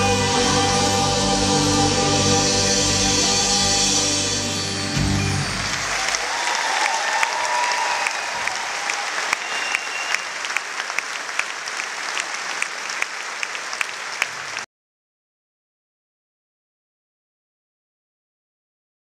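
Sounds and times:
audience applauding: 5.3s - 14.7s.

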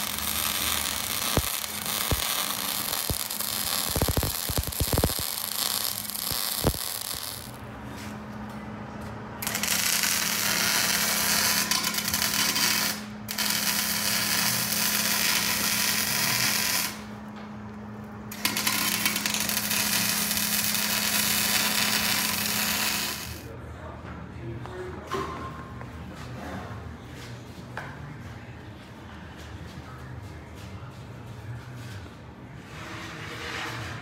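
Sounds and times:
arc welding crackling sizzle: 0.0s - 7.6s, 9.4s - 17.1s, 18.3s - 23.5s.

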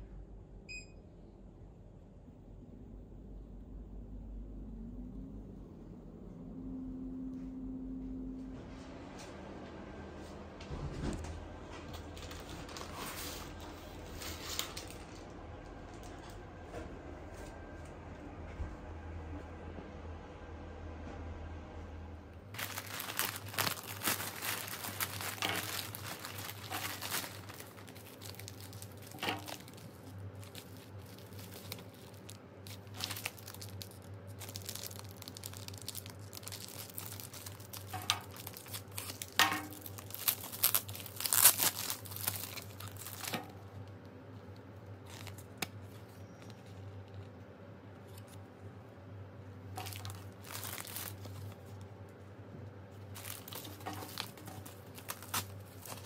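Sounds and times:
steady low hum: 0.0s - 56.0s
plastic packaging tearing and rustling: 12.0s - 15.2s, 22.6s - 44.0s, 45.0s - 47.2s, 49.7s - 51.9s, 53.0s - 56.0s.

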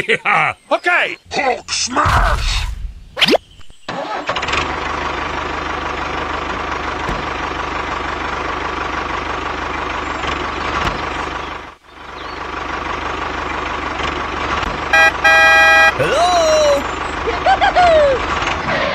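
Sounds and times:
tractor diesel engine chugging: 4.0s - 18.9s.

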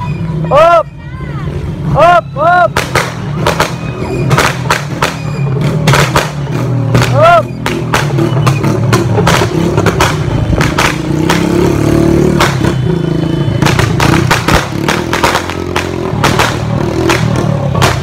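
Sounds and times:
firecrackers cracking: 2.7s - 11.7s, 12.3s - 12.8s, 13.6s - 18.0s
motorcycle engine running: 3.1s - 18.0s.

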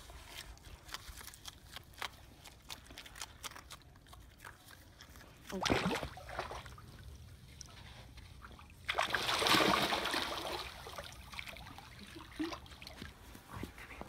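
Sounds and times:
water splashing and sloshing: 4.1s - 13.9s
water trickling and lapping: 4.1s - 14.0s.

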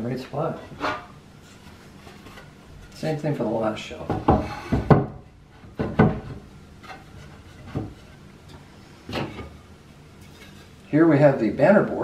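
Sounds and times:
wooden board knocking on wood: 4.1s - 6.4s.

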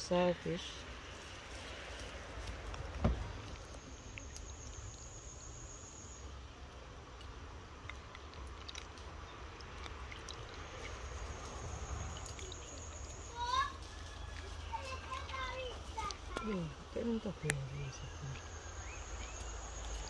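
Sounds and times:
insect trilling: 3.2s - 6.4s, 8.2s - 20.0s.

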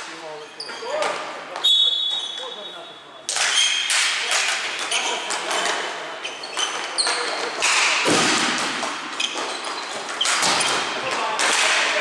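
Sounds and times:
hockey sticks and ball knocking on floor: 3.3s - 12.0s.

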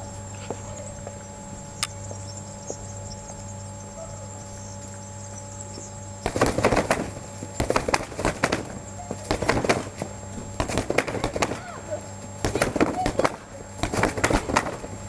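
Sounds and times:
boxing gloves hitting punching bag: 6.3s - 11.8s, 12.4s - 14.9s.

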